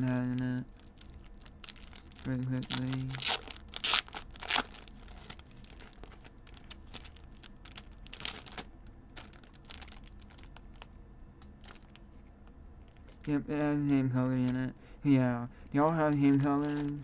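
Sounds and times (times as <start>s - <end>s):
plastic and foil crinkling: 0.0s - 12.1s, 15.8s - 17.0s.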